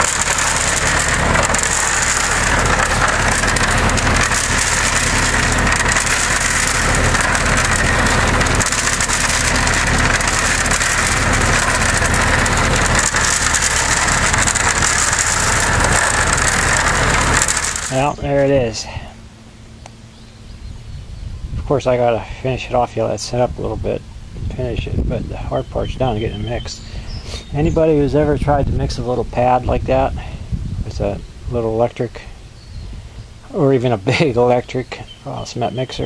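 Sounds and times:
constant rushing noise: 0.0s - 20.0s
cement mixer humming: 0.0s - 36.0s.

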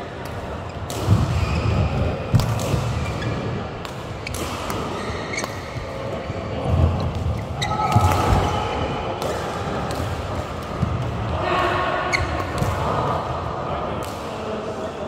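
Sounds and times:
court shoes squeaking: 0.0s - 9.0s, 12.1s - 12.8s
racket hitting shuttlecock: 0.1s - 6.0s, 7.0s - 11.1s.

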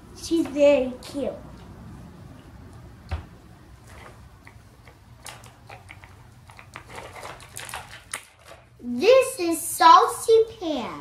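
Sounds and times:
plastic toys clicking: 4.5s - 8.7s.

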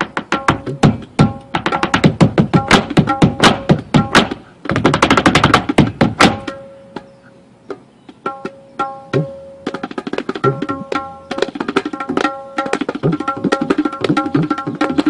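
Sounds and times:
tabla drumming: 0.0s - 6.6s, 8.2s - 15.0s
hard shoes tapping on wooden decking: 0.0s - 7.1s, 9.2s - 15.0s.

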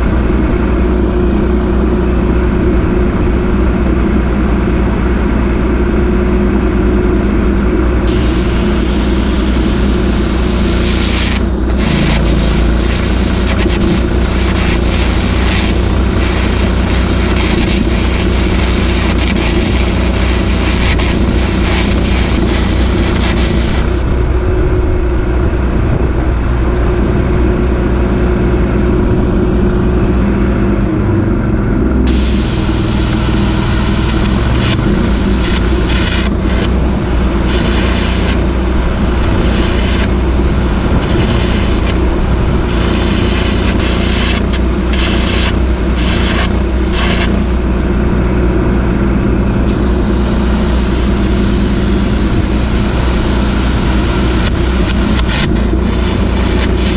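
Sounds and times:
engine running: 0.0s - 56.9s
welding arc crackling: 8.1s - 24.1s, 32.1s - 47.7s, 49.7s - 56.9s.

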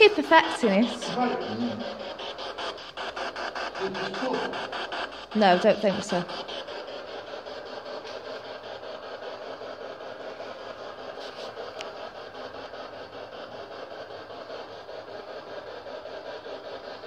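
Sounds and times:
radio static stuttering: 0.0s - 8.4s.

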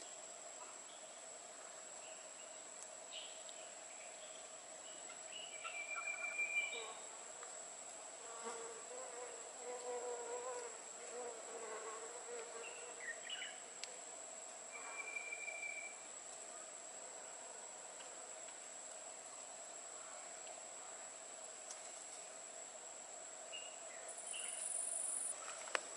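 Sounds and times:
flying insect buzzing: 8.2s - 13.7s
high-pitched insect drone: 14.7s - 16.1s.

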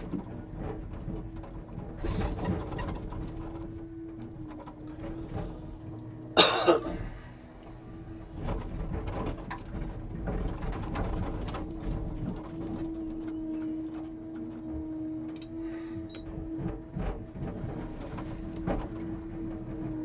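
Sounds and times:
knocks and clatter: 0.0s - 6.9s, 7.7s - 20.0s
hydraulic crane hum: 1.8s - 9.3s, 12.2s - 20.0s.

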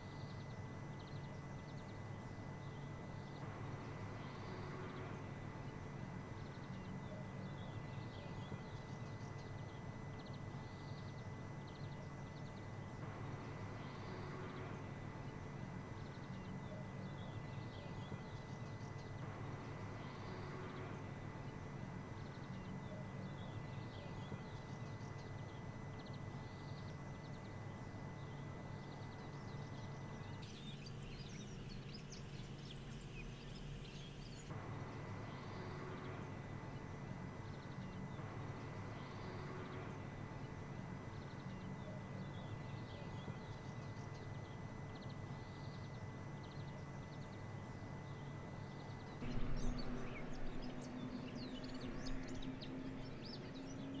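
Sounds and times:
steady low hum: 0.0s - 54.0s
bird chirps: 41.1s - 54.0s.

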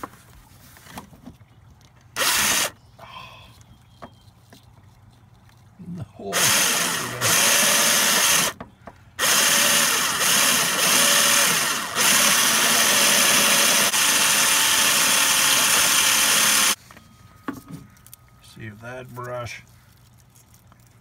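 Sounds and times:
power drill with wire brush: 2.2s - 2.7s, 6.3s - 8.6s, 9.2s - 16.8s.

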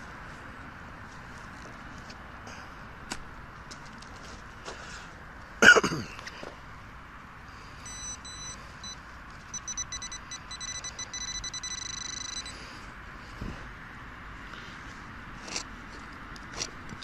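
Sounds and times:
pinpointer electronic beeps: 7.8s - 12.6s.

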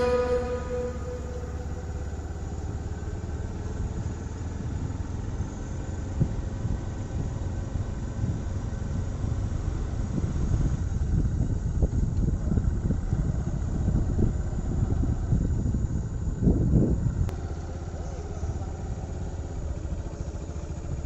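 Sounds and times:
small vehicle engine running: 0.0s - 21.0s
wind on microphone: 9.2s - 17.3s.

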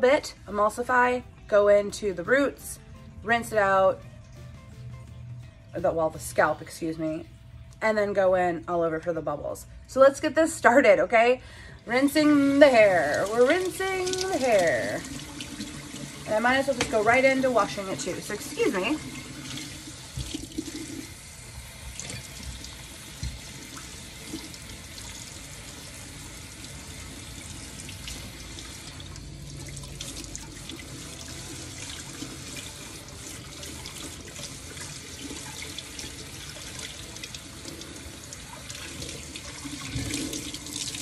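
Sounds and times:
tap water running: 10.5s - 41.0s.

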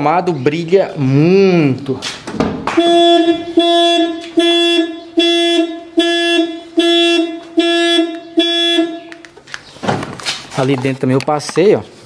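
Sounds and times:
car alarm horn honking: 2.7s - 9.4s.

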